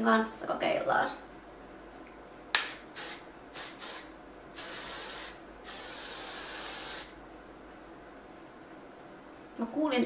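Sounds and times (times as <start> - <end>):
hairspray can spraying: 2.6 - 7.2.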